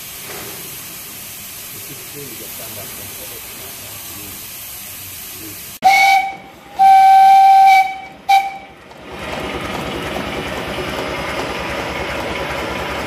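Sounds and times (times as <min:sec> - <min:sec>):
steam whistle: 0:05.8 - 0:08.8.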